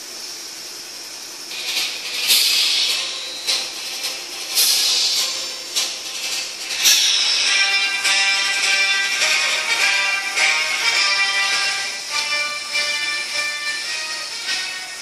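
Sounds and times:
music: 1.5 - 15.0
hissing blasts: 6.6 - 15.0.

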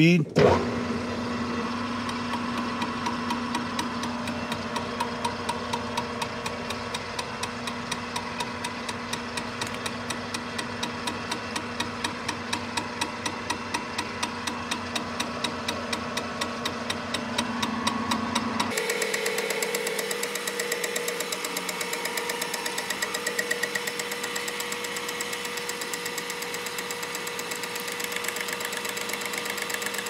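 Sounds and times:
milling machine hum: 0.4 - 30.0
regular ticking: 2.1 - 19.3.

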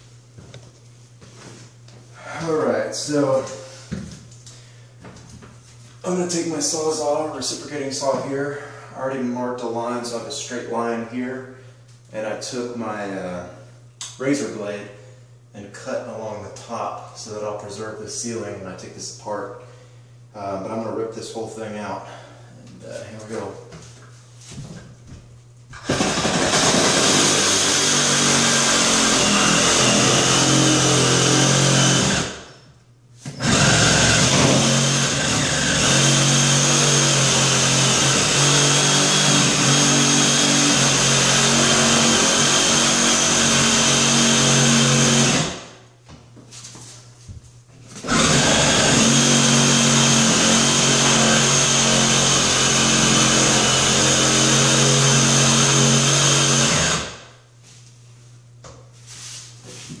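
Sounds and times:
reciprocating saw cutting panel: 25.8 - 32.4, 48.0 - 57.1.

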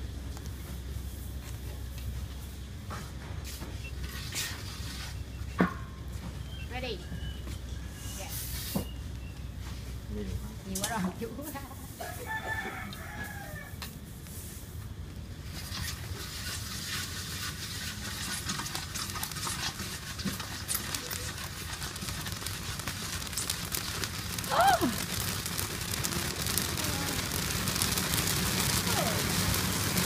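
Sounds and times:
rice popping crackle: 0.0 - 30.0
rooster crowing: 12.0 - 13.8.

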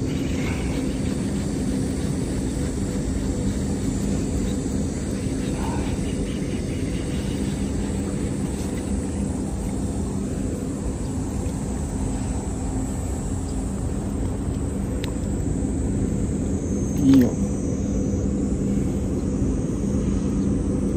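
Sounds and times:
low mechanical drone: 0.0 - 20.9.

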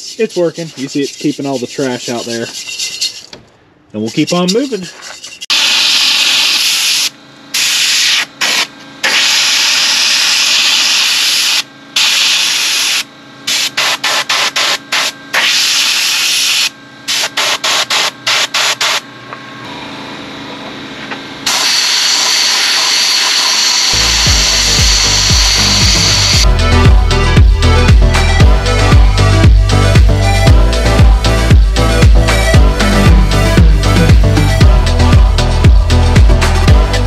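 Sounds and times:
dance music: 23.9 - 37.0.

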